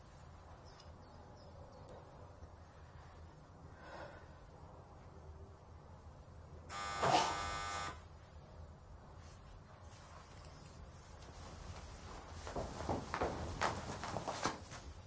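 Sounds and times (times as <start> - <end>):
doorbell buzzer: 6.7 - 8.1.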